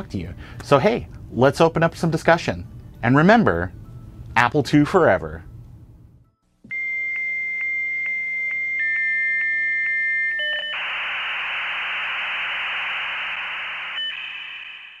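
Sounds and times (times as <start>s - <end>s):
modem tones: 10.4s - 15.0s
harsh modem hiss: 10.8s - 15.0s.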